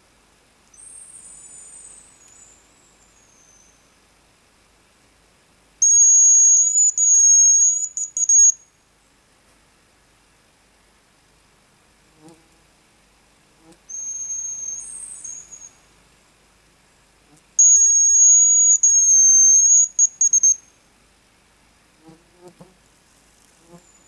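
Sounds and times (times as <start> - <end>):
bird whistle calls: 5.8 - 8.6, 13.9 - 15.8, 17.6 - 20.7
faint rustles: 22.0 - 24.0.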